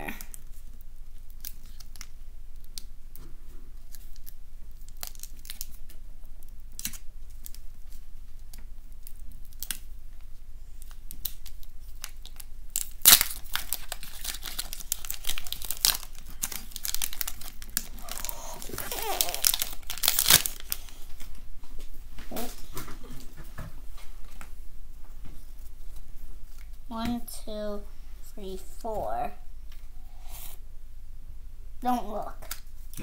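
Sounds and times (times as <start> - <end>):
foil pack crinkling and tearing: 0.2 - 2.8, 3.8 - 6.0, 6.7 - 9.9, 10.8 - 21.3.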